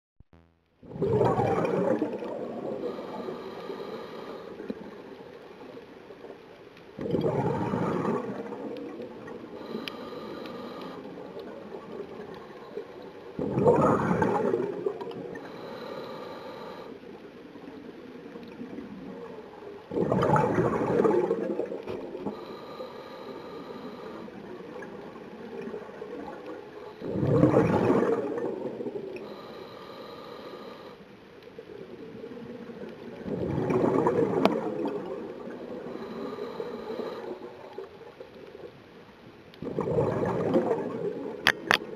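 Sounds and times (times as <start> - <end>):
exhaled bubbles underwater: 0.8 - 5.4, 7.0 - 16.9, 17.5 - 30.8, 31.7 - 38.2, 39.6 - 41.9
regulator inhalation hiss: 2.8 - 4.6, 9.6 - 11.2, 15.4 - 17.0, 22.4 - 24.4, 29.2 - 31.0, 35.8 - 37.4.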